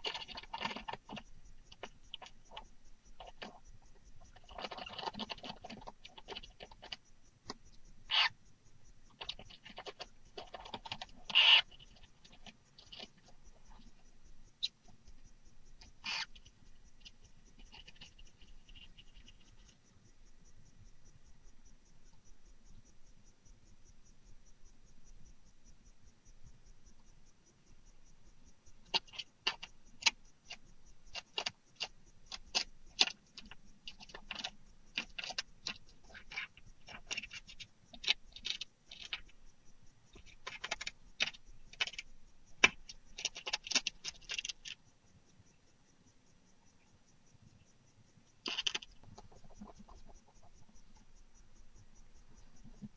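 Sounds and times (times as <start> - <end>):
owl scratchy calls: 0.0 - 3.6, 8.0 - 8.4, 9.1 - 13.8, 15.8 - 19.8, 28.9 - 39.4, 48.4 - 50.7
clicks and scratches: 0.0 - 8.4, 9.1 - 20.1, 28.8 - 44.8, 48.4 - 51.2.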